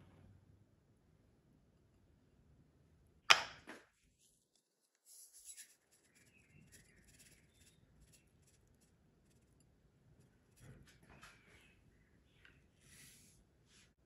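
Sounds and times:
seeds sprinkling into bowl: 0:04.2 - 0:09.7.

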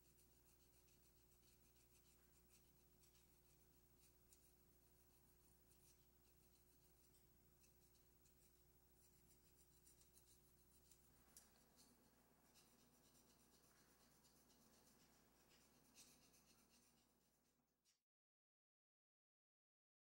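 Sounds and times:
low background hum: 0:00.0 - 0:17.2
object scratching on stone wall: 0:05.8 - 0:17.2.

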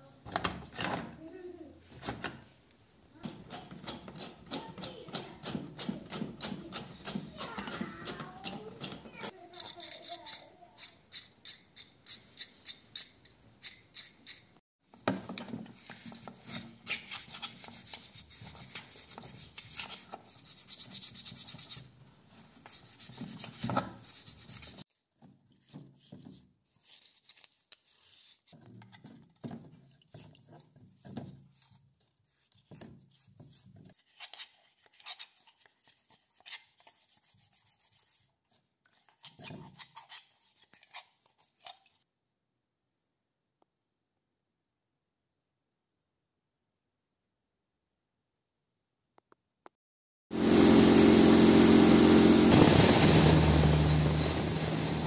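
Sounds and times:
bristle brush scrubbing metal: 0:03.3 - 0:12.4, 0:15.8 - 0:24.8.

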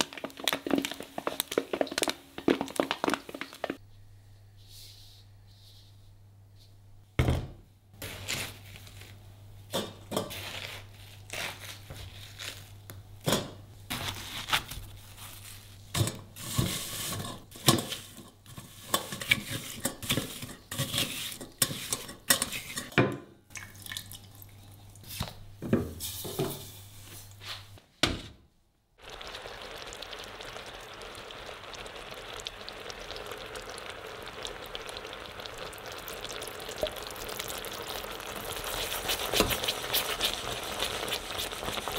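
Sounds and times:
syrup bubbling in saucepan: 0:29.0 - 0:41.9.

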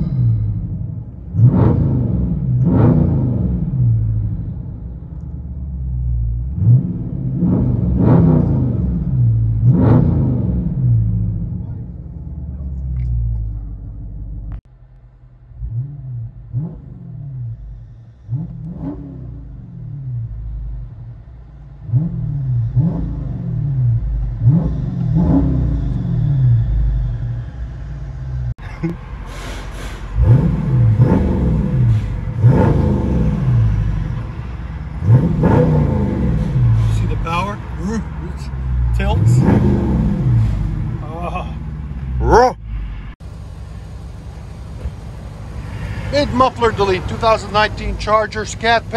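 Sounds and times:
car engine idling: 0:00.0 - 0:09.7, 0:10.4 - 0:25.2, 0:25.9 - 0:48.9
car engine revving: 0:00.0 - 0:29.0, 0:30.1 - 0:48.9.

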